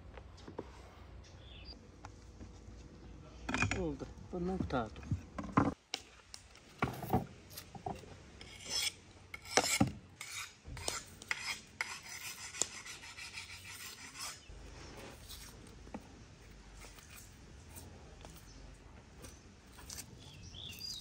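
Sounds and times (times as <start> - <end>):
knife blade rasping on sharpener: 8.4 - 14.4.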